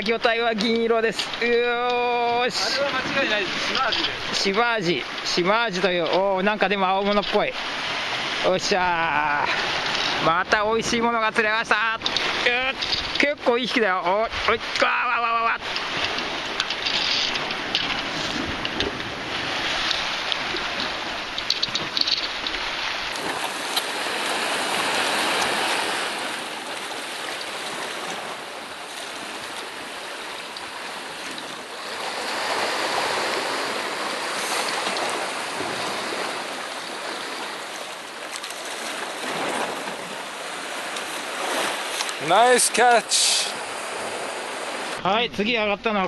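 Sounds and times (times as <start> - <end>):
surf on rocky shore: 0.0 - 46.0
wind on microphone: 15.9 - 37.4.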